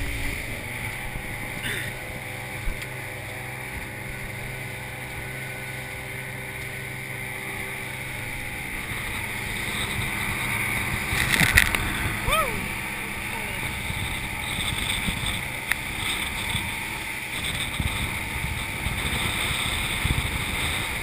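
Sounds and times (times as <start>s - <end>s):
outboard motor running: 0.0s - 21.0s
rush of boat wake: 0.0s - 21.0s.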